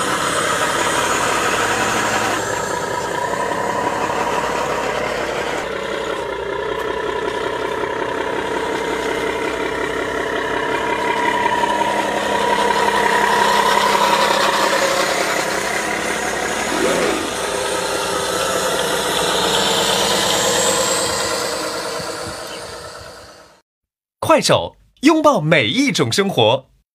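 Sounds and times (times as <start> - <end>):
diesel truck engine sound: 0.0 - 23.6.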